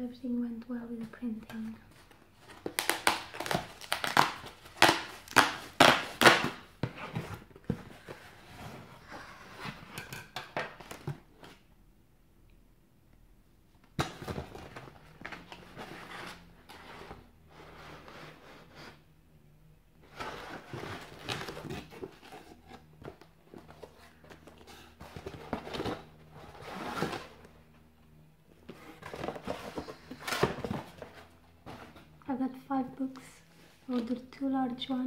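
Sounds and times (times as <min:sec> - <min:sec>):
cardboard rustling: 0:01.2 - 0:10.0, 0:14.0 - 0:18.9, 0:20.0 - 0:32.3
cardboard cracking and scraping: 0:02.4 - 0:08.7, 0:20.1 - 0:27.6, 0:28.6 - 0:32.2.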